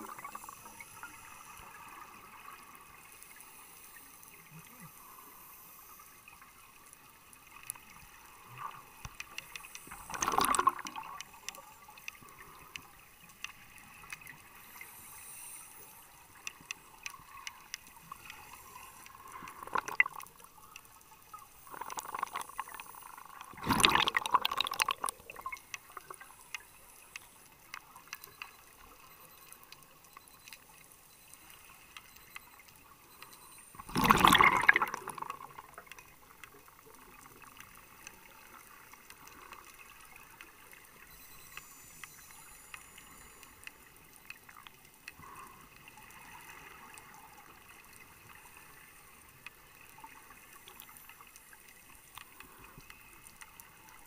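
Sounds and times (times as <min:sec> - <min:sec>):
faint water hiss: 0:00.0 - 0:54.0
exhaled bubbles gushing: 0:09.9 - 0:11.2, 0:19.4 - 0:20.3, 0:21.6 - 0:25.6, 0:33.8 - 0:35.9.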